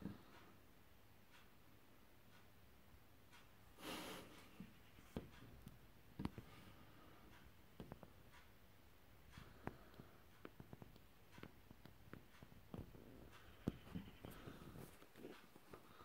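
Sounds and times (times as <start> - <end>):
faint clicks and taps: 4.3 - 16.0.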